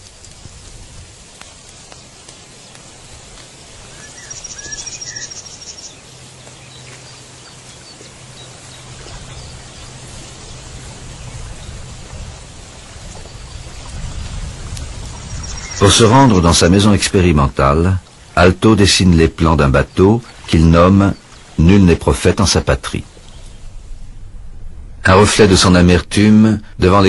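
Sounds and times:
low hum: 0.0 - 26.8
steady outdoor hiss: 0.0 - 27.0
bird trilling and chirping: 3.8 - 10.6, 15.1 - 16.0.

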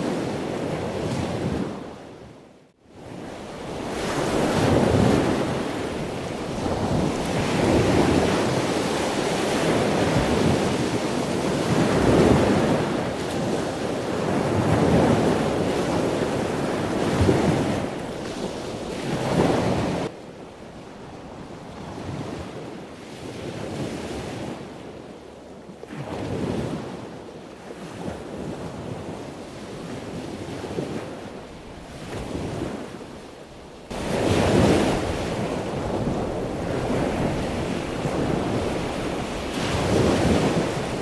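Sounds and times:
wind on microphone: 0.0 - 41.0
waves breaking on rocks: 33.9 - 41.0.

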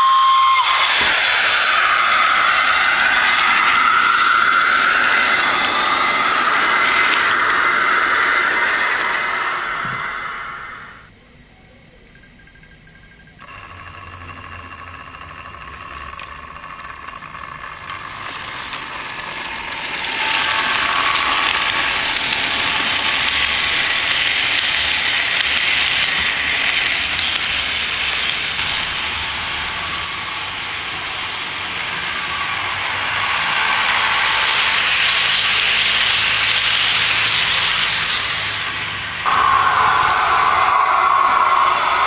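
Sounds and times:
model locomotive motor whine: 0.0 - 11.1, 12.2 - 42.0
model train wheels clattering: 13.0 - 42.0.

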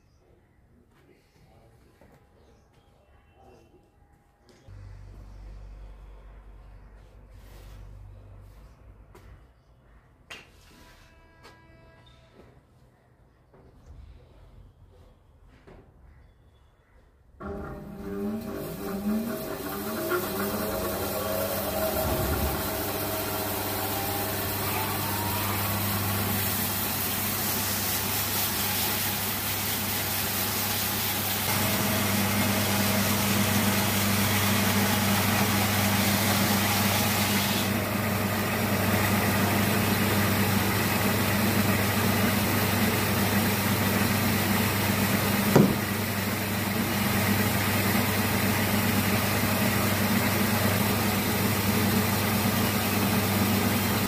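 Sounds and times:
bandsaw cutting log: 18.1 - 44.4, 45.4 - 48.4
sharp knock: 45.6 - 45.8.

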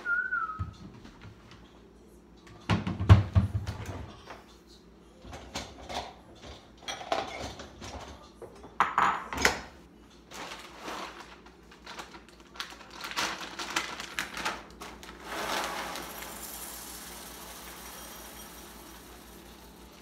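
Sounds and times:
dishes clattering on stone counter: 5.3 - 9.7
plastic bag rustling: 10.3 - 19.9.

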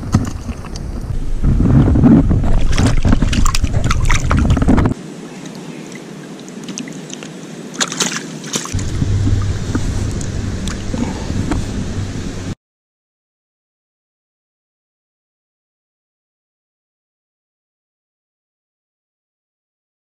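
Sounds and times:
wind rumble on microphone: 0.0 - 5.0, 8.7 - 12.6
water sloshing and splashing: 0.0 - 12.6.

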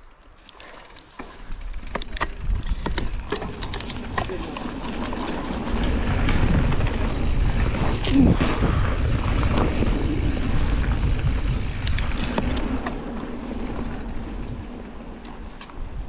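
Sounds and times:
bike rattling over rough ground: 0.0 - 16.0
wind rushing: 2.3 - 15.2.

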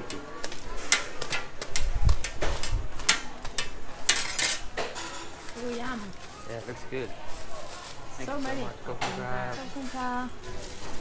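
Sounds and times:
metal tongs clicking on trays: 0.0 - 5.1
plastic bag crinkling: 4.3 - 11.0.

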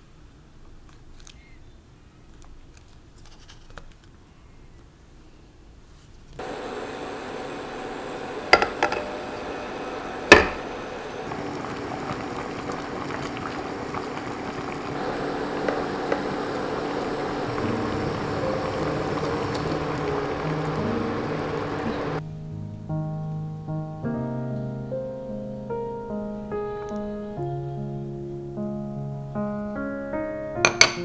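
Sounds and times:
water simmering in a pot: 6.4 - 22.2.

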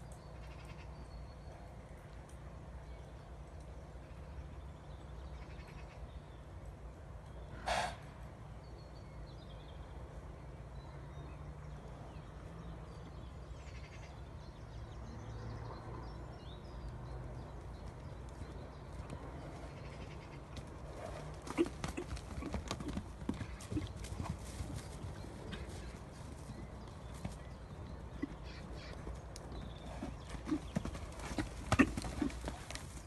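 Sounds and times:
low background noise: 0.0 - 33.0
horse snorting: 20.9 - 24.0, 29.8 - 32.8.

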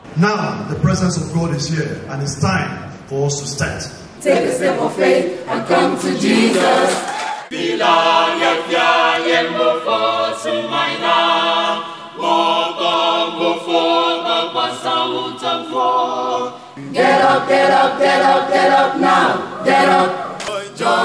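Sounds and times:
mixed choir singing a cappella: 4.2 - 21.0.

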